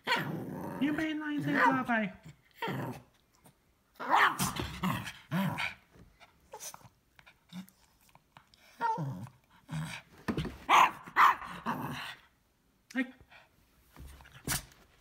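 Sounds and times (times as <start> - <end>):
dog barking and growling: 0.0 - 3.1, 3.9 - 5.9, 8.7 - 12.3.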